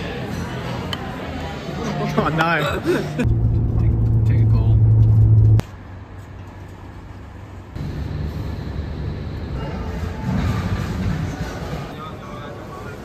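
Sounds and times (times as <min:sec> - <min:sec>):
steady low rumble: 0:03.2 - 0:05.6.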